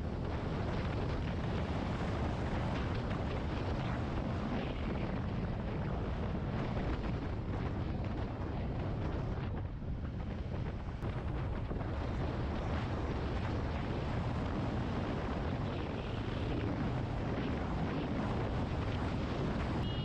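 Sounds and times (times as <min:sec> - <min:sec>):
wind rush on microphone: 0:00.0 - 0:20.0
road noise: 0:18.5 - 0:20.0.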